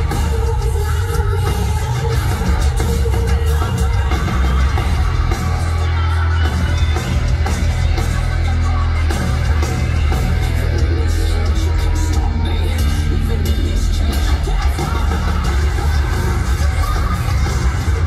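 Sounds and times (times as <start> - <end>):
heavy metal band playing live: 0.0 - 18.0.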